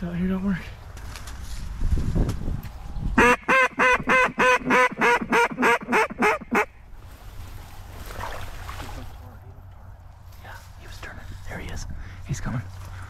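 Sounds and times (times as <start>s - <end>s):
duck call quacks: 3.2s - 6.8s.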